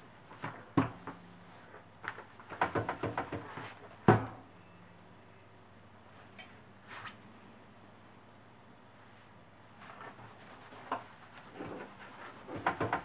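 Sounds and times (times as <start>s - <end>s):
iron knocking on pressing mat: 12.4s - 13.0s.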